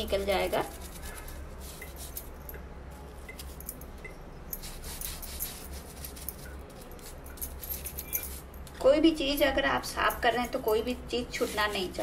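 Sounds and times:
brush scrubbing plastic: 0.0 - 2.2, 11.3 - 12.0
low steady hum: 0.0 - 12.0.

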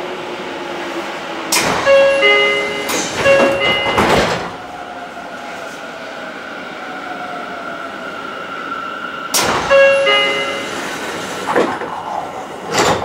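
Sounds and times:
train doors thudding shut: 1.5 - 4.7, 9.3 - 13.0
two-note door chime: 1.9 - 4.2, 9.7 - 10.7
door mechanism rushing noise: 11.4 - 13.0.

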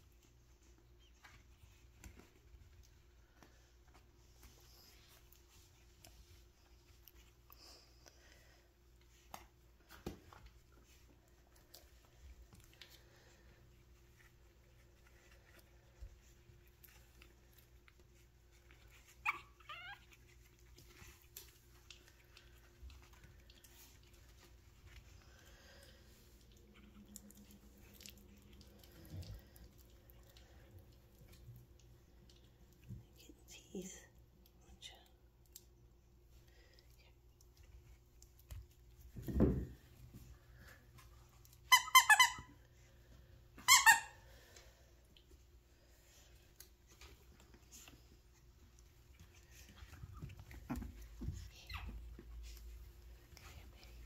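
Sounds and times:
puppy yelping: 18.9 - 20.6
squeaky dog toy squeaks: 41.7 - 42.5, 43.6 - 44.2.

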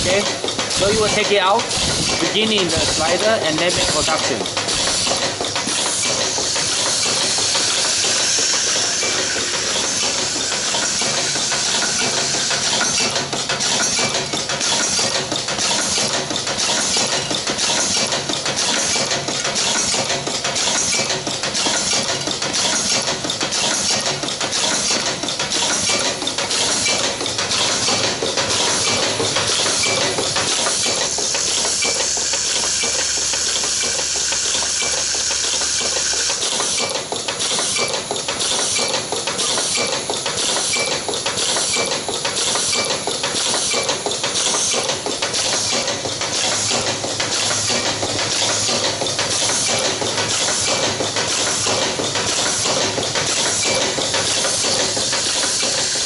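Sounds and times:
machine hiss: 0.2 - 56.0.

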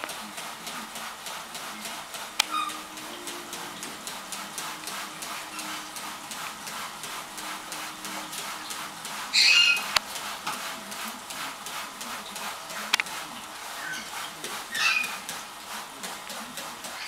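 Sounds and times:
steady hiss: 0.0 - 17.0
parrot squawk: 2.5 - 2.9, 9.3 - 9.9, 14.7 - 15.2.

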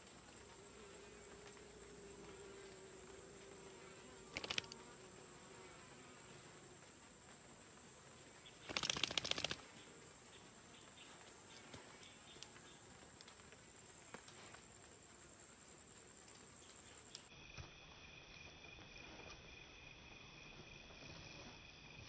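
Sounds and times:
honeybees buzzing: 0.0 - 7.4
noisy bursts of rapid ticks: 4.1 - 5.0, 8.4 - 11.0.

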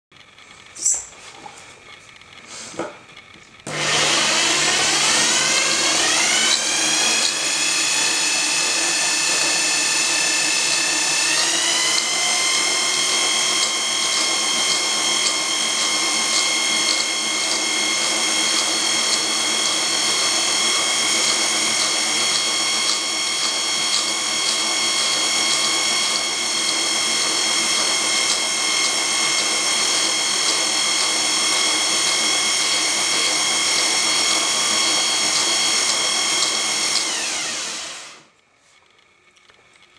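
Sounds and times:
electric motor whine: 3.6 - 38.3.

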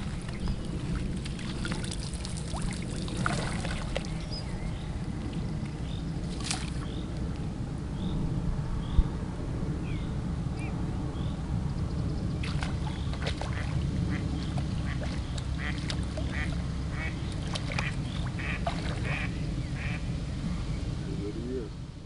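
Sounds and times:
fish thrashing and splashing: 0.0 - 4.2, 6.2 - 6.9, 12.4 - 16.7, 17.3 - 19.3.

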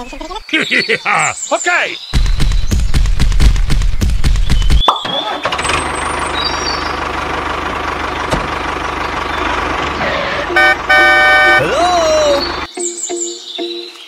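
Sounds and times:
tractor engine chugging: 5.1 - 12.7
engine idling low throb: 5.6 - 12.7.

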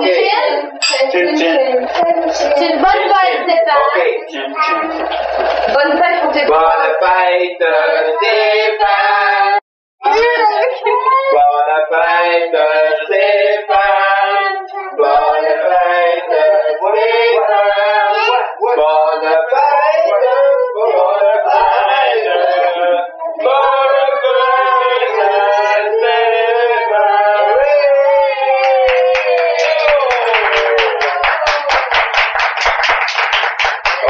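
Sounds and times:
voices singing together: 0.0 - 32.0.

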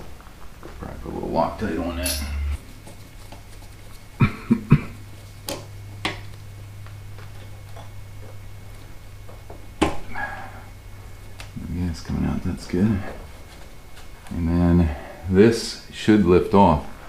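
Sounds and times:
low hum: 0.0 - 15.5
hand tool clinking on metal: 1.7 - 2.6.

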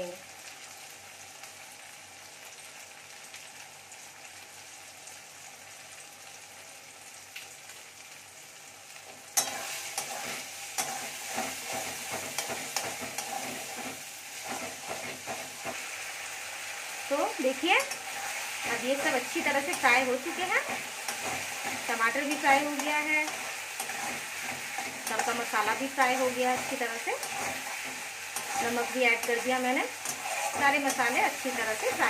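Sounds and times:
masala sizzling in a metal pan: 0.0 - 32.0
metal spatula scraping a pan: 9.4 - 15.9, 17.4 - 32.0.

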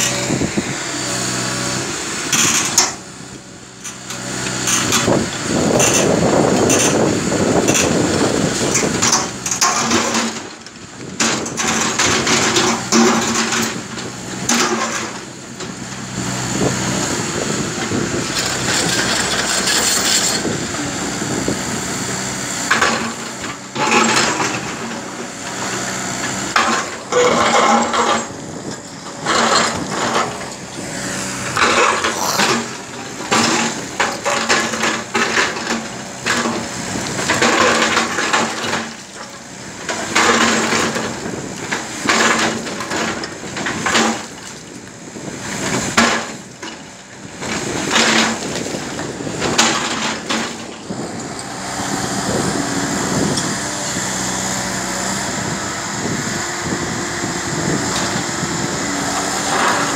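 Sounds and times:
diesel engine running: 0.0 - 59.9
steel bucket grinding through stones: 17.8 - 20.5, 59.0 - 59.9.

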